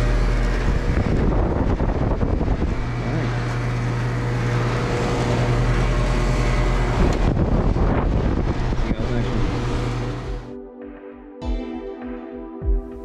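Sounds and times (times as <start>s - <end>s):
fan air rushing: 0.0s - 10.5s
low hum: 0.0s - 10.5s.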